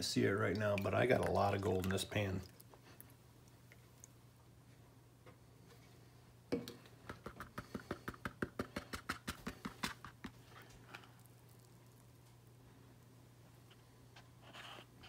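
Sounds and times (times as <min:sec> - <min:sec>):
quick sharp taps on plastic pan: 0:06.6 - 0:10.3.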